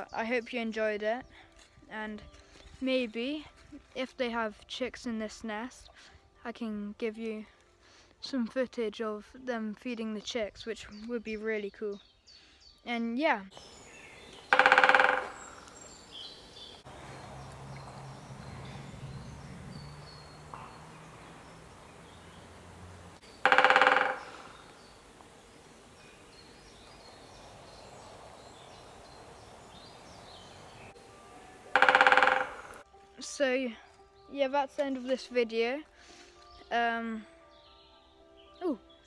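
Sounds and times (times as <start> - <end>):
faint birdsong: 9.8 - 39.0
woodpecker drumming on wood: 13.6 - 18.8, 20.0 - 27.0, 31.6 - 32.8.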